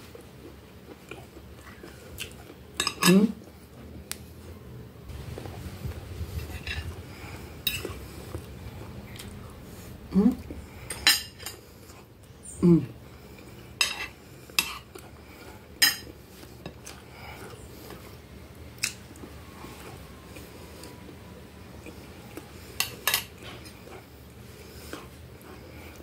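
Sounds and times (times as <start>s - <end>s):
person humming: 9.4s - 10.6s, 12.4s - 13.0s.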